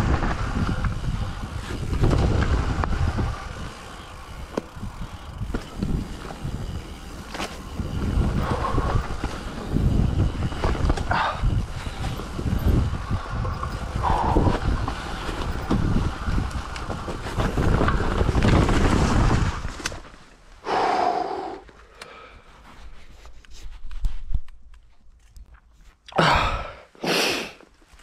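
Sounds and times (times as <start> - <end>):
wind on microphone: 0.0 - 19.9
mountain bike rattling on dirt trail: 0.0 - 20.6.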